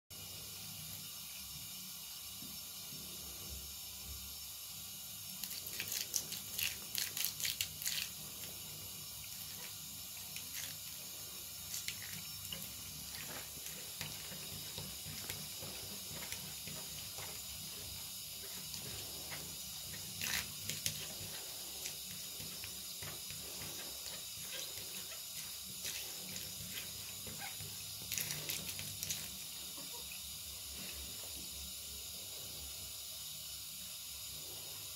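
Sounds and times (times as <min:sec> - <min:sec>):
tap water running into bathtub: 0:00.1 - 0:34.9.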